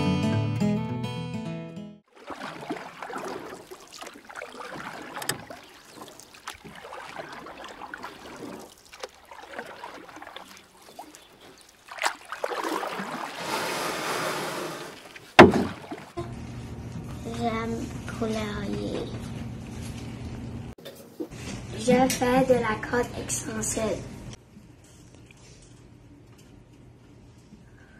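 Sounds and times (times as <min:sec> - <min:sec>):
sharp knock: 0:15.4 - 0:15.8.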